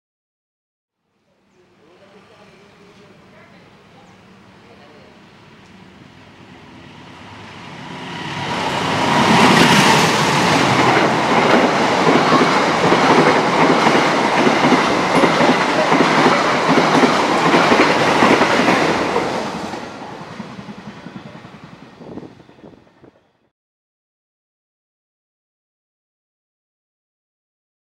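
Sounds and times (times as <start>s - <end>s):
locomotive passing: 1.7s - 23.4s
train wheels clacking on rail joints: 8.7s - 19.8s.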